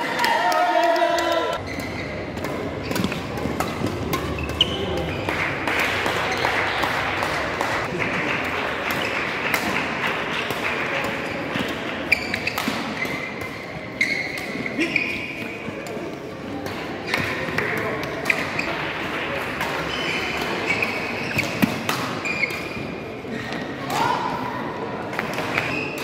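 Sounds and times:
background chatter: 0:01.5 - 0:26.0
racket hitting shuttlecock: 0:01.6 - 0:16.0, 0:16.6 - 0:23.0
shoe squeaks on court floor: 0:04.3 - 0:05.0, 0:12.1 - 0:15.6, 0:19.9 - 0:22.8.

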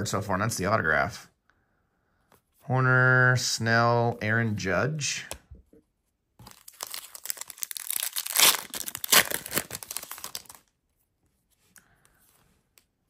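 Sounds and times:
foil wrapper tearing and crinkling: 0:06.4 - 0:10.7.

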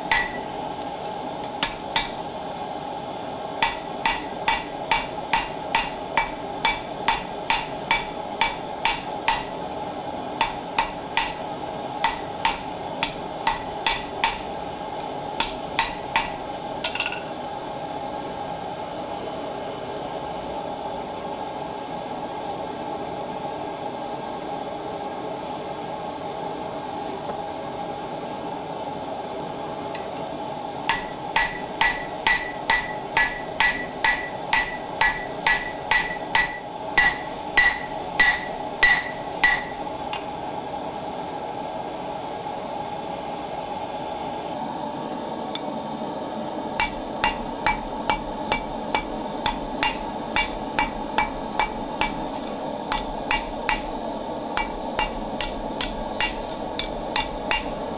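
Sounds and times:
hammer striking steel on anvil: 0:00.0 - 0:00.6, 0:01.4 - 0:02.2, 0:03.6 - 0:09.6, 0:10.4 - 0:17.3, 0:30.9 - 0:40.2, 0:46.8 - 0:54.0, 0:54.6 - 0:57.9
gas burner hissing: 0:29.6 - 0:41.1, 0:46.1 - 0:57.9.

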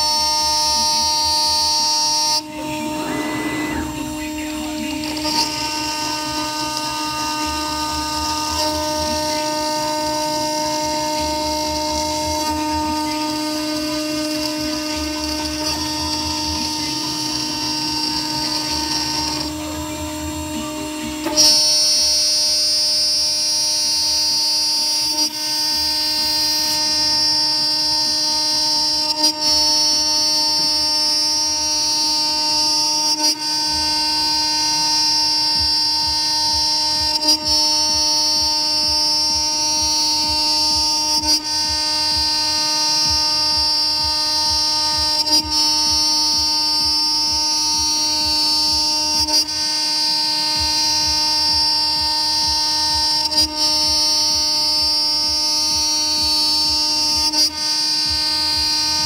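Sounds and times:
router spindle whine: 0:00.0 - 0:59.0.

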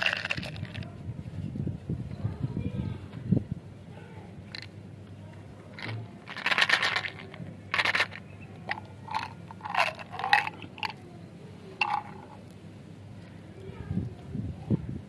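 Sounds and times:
candy beans rattling: 0:00.0 - 0:00.9, 0:04.5 - 0:04.7, 0:05.7 - 0:11.0, 0:11.8 - 0:12.4.

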